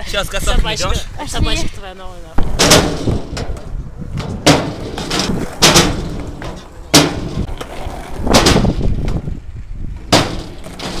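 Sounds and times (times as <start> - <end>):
skateboard wheels rumbling: 1.4 - 11.0
skateboard banging on metal ramp: 2.4 - 9.3, 10.0 - 11.0.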